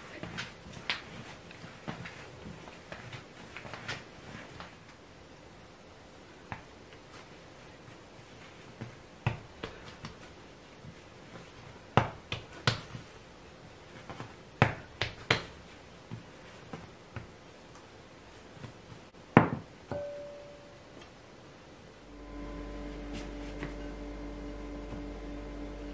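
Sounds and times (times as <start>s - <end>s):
glass bowl knock and ring: 19.9s - 20.7s.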